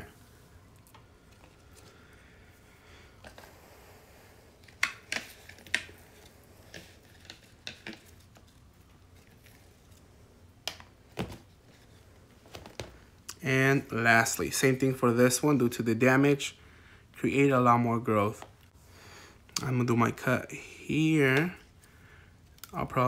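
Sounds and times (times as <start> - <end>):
plastic plant pots tapping: 6.8 - 8.1.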